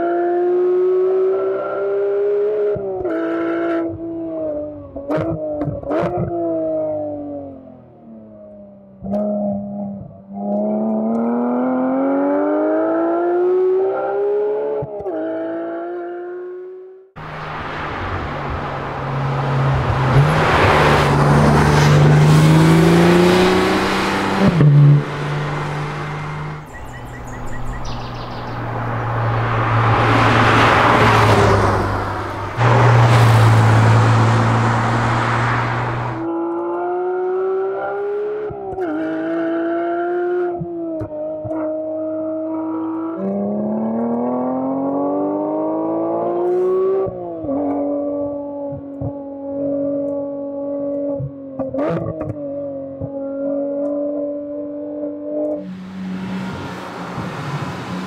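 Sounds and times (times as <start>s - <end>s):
car engine accelerating hard: 0.0s - 58.0s
car rushing past at speed: 17.2s - 36.3s, 55.4s - 58.0s.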